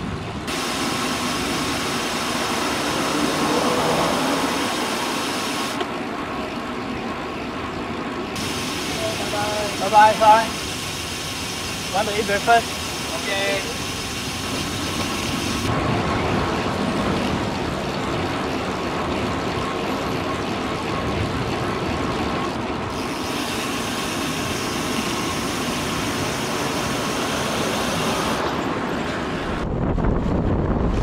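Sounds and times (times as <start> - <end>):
motor vehicles passing: 1.5 - 8.3, 14.6 - 23.0.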